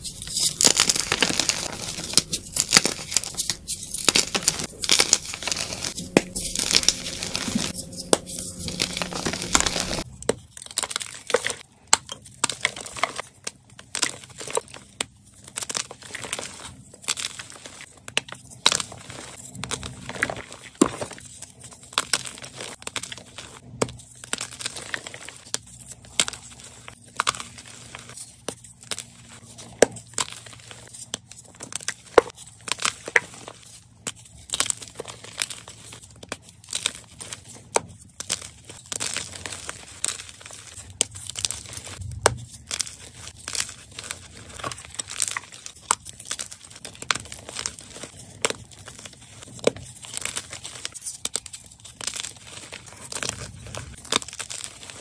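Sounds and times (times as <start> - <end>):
chalk crunching by hand: 0.0 - 10.1.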